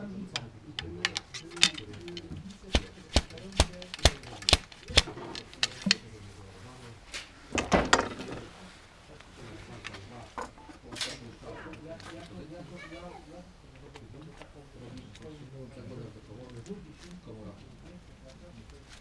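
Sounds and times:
ramrod knocking in gun barrel: 0.8s - 6.0s
scraping rustle: 1.2s - 7.4s, 17.9s - 19.0s.

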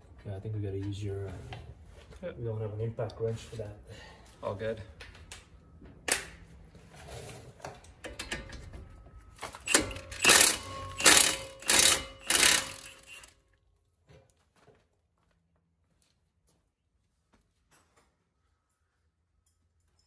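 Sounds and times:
tools clattering: 7.7s - 13.3s
impact wrench hammering: 9.6s - 13.3s.

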